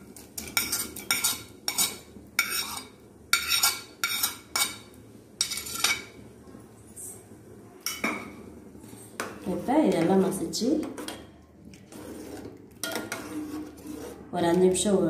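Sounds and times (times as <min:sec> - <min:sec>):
metal spoon scraping plate and pot: 0:00.4 - 0:06.1, 0:11.9 - 0:14.3.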